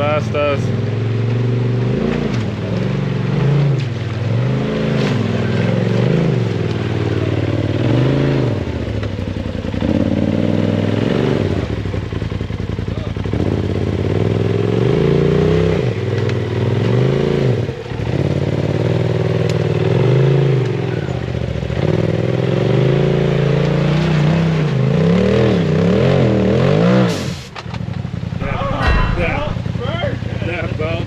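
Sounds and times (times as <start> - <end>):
engine revving: 0.0 - 8.8, 9.8 - 11.8.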